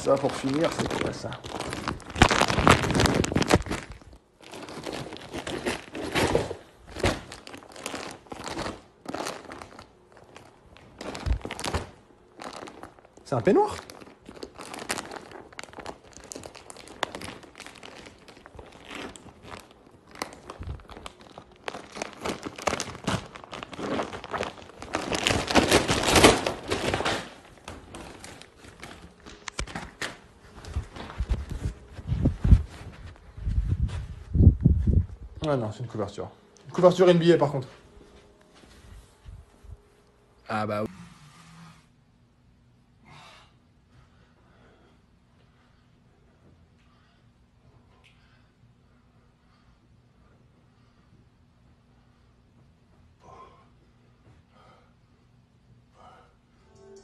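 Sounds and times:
plastic packaging crinkling: 0.0 - 33.0.

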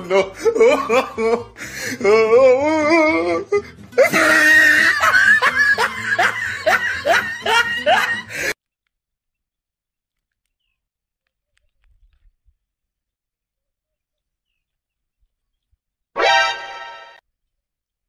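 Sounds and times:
music: 0.0 - 8.5, 16.2 - 17.2
person laughing: 0.0 - 8.6.

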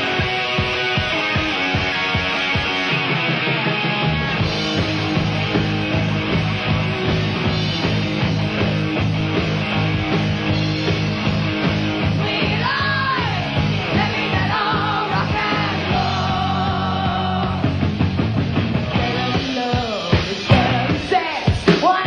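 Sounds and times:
bass guitar: 0.0 - 22.0
drums: 0.0 - 22.0
electric guitar: 0.0 - 22.0.

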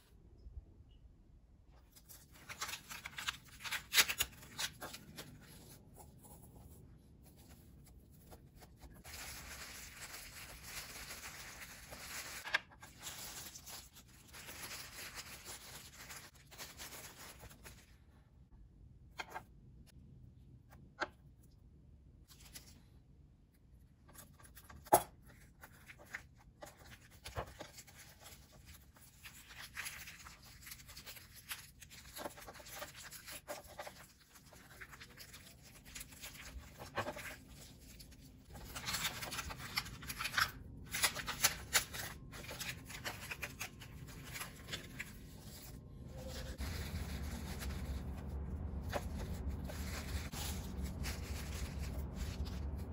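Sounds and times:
seaweed sheet crinkling: 7.3 - 17.9, 26.8 - 52.9
low hum: 41.5 - 52.9.

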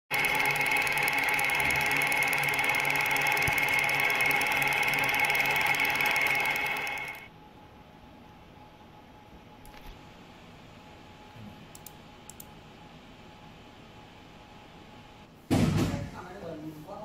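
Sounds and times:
laser engraver buzzing: 0.1 - 7.3.

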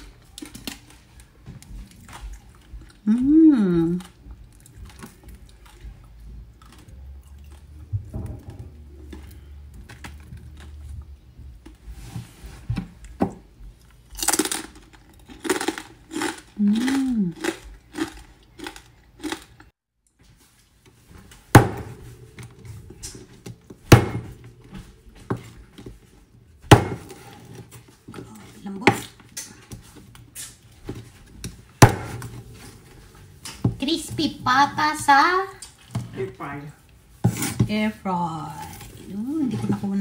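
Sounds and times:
crunchy pork skin chewing: 0.0 - 7.9, 8.8 - 11.8, 13.0 - 19.7
knife chopping on wooden board: 21.6 - 22.1, 23.9 - 24.4, 26.6 - 27.4, 31.8 - 32.4.

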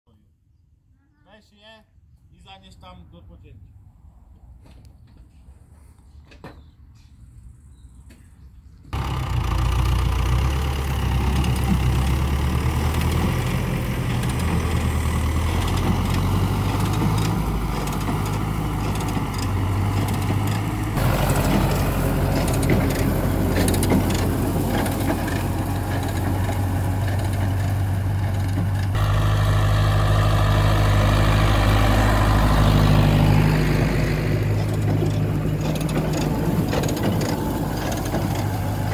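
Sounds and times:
tractor diesel engine running: 8.9 - 38.9
manure spreader throwing manure: 9.0 - 38.9.

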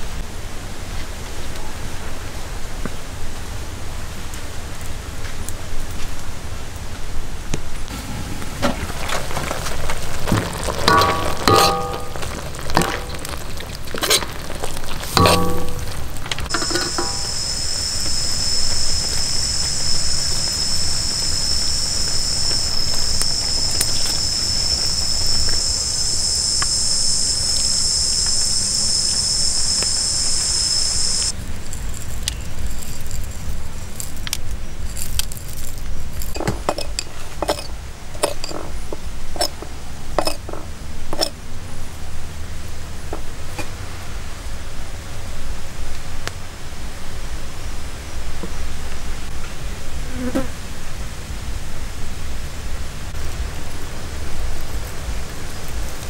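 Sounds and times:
sharp clinks and taps: 15.2 - 21.5
insects droning high-pitched: 15.2 - 31.3.

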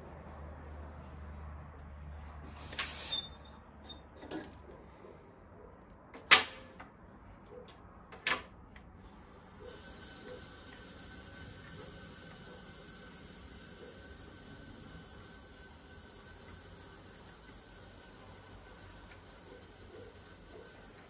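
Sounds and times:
short hiss: 2.5 - 3.5.

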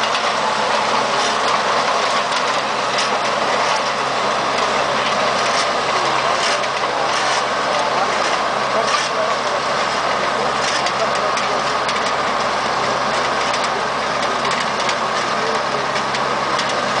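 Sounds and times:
power harrow churning soil: 0.0 - 17.0
tractor engine running: 0.0 - 17.0
faint clatter: 4.6 - 17.0.

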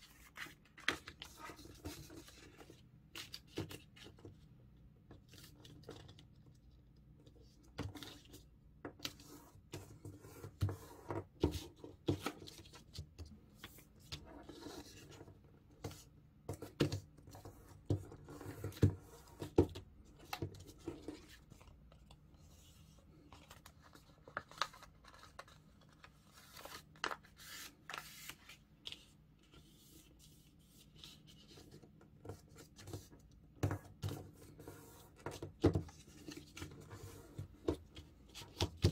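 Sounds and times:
paper being folded and creased: 0.0 - 4.2, 20.2 - 31.8.

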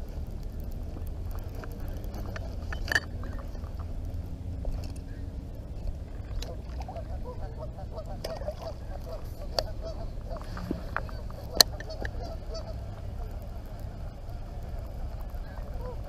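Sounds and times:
flock of birds calling: 5.0 - 16.0.

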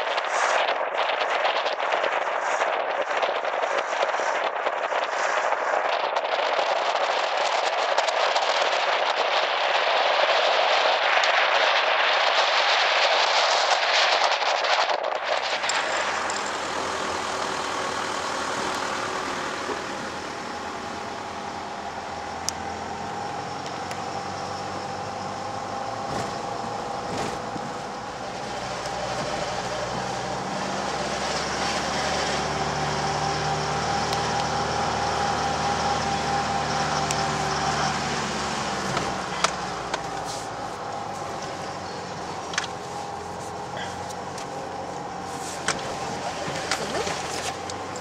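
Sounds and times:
engine hum from inside cab: 15.5 - 48.0.

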